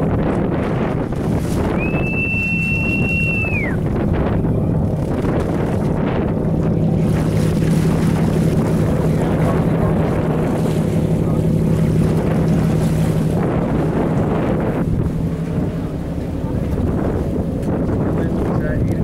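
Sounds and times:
boat engine humming: 0.0 - 19.0
choppy sea washing: 0.0 - 19.0
wind noise on microphone: 0.0 - 19.0.

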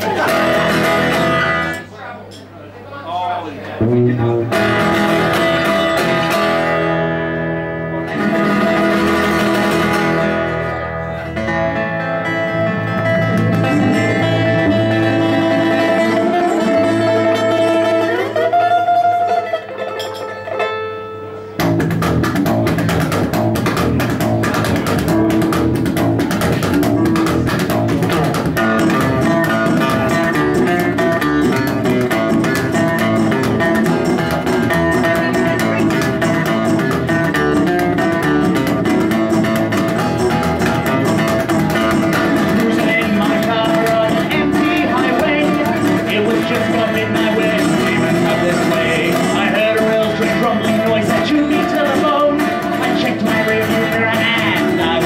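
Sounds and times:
acoustic string band playing: 12.6 - 19.0, 21.8 - 55.0.

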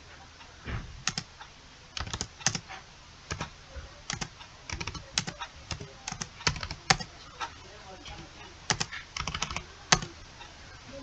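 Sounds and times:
computer keyboard typing: 1.0 - 1.4, 2.0 - 2.7, 3.3 - 7.2, 8.0 - 10.2.

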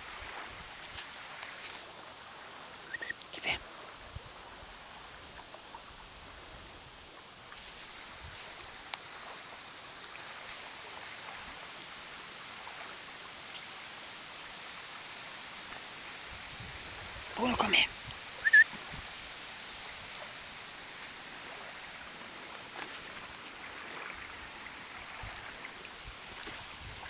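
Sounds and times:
outdoor background hiss: 0.0 - 27.0.

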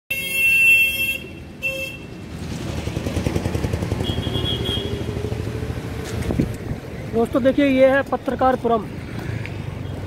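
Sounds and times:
vehicle horn honking: 0.1 - 2.1, 4.0 - 5.1
street traffic noise: 0.1 - 10.0.

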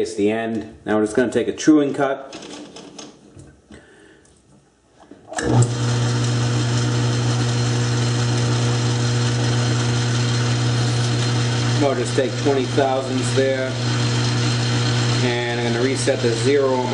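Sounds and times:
lathe motor humming: 5.4 - 16.9.

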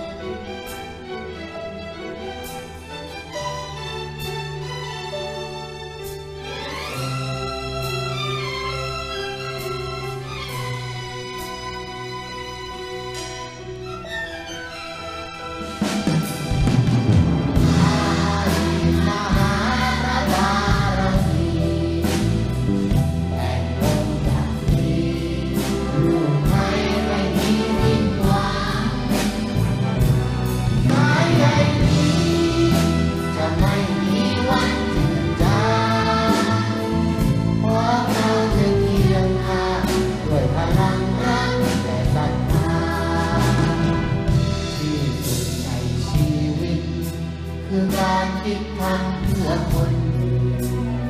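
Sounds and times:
children's choir singing: 0.0 - 11.8, 15.4 - 47.1, 47.7 - 51.0
orchestra accompanying: 0.0 - 51.0.

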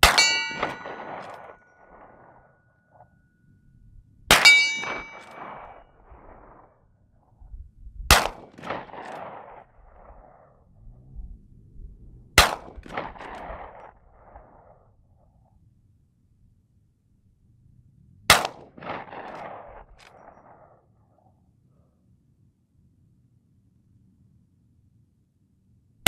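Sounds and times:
rifle shots with echoes: 0.0 - 2.5, 4.3 - 6.6, 8.1 - 10.6, 12.4 - 14.8, 18.3 - 20.8
brief metallic ring: 0.1 - 1.5, 4.4 - 5.4.

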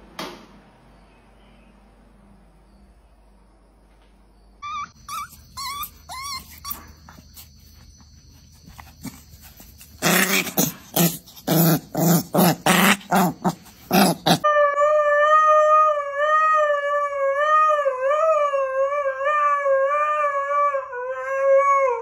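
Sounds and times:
puppy yapping and growling: 4.6 - 7.2, 9.8 - 16.7.

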